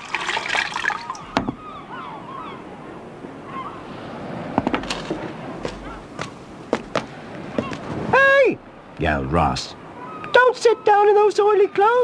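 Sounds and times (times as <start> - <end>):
tea pouring into mug: 0.0 - 1.2.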